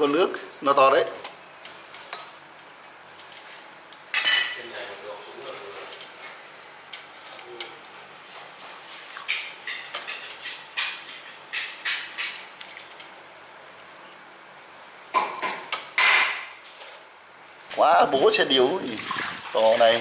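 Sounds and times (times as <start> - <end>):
utensils and containers clattering: 9.2 - 13.0.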